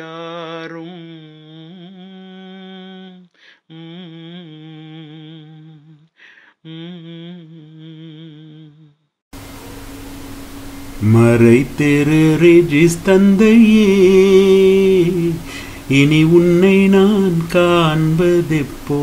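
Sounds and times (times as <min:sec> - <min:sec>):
steady hiss: 0:09.4 - 0:19.0
man singing wordless melody: 0:11.0 - 0:19.0.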